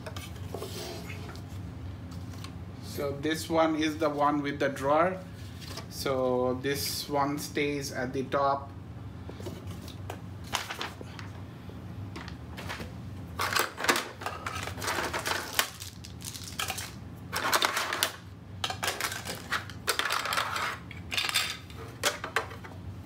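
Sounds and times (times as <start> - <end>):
plastic parts knocking and rattling: 13.4 - 22.7.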